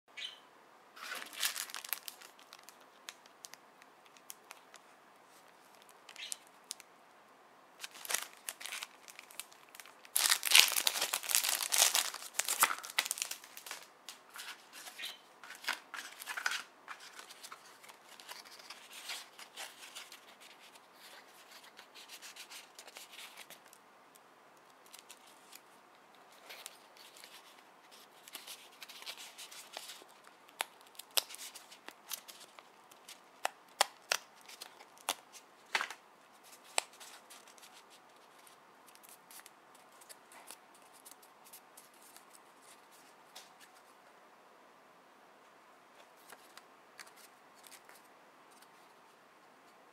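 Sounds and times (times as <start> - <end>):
paper rustling: 1.0 - 3.2, 7.8 - 23.7
plastic packaging crinkling and tearing: 1.0 - 4.8, 7.8 - 20.7, 26.4 - 37.8.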